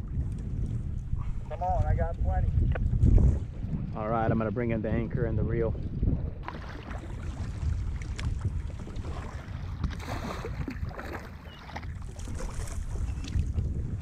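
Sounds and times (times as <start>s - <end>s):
wind rumbling on microphone: 0.0s - 14.0s
water sloshing against kayak: 5.9s - 14.0s.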